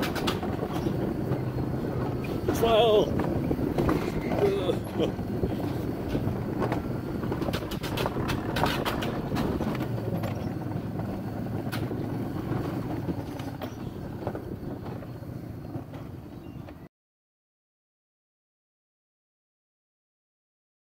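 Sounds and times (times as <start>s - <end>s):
sharp clicks and clacks: 0.0s - 15.1s
wheels rumbling on steel rails: 0.0s - 16.9s.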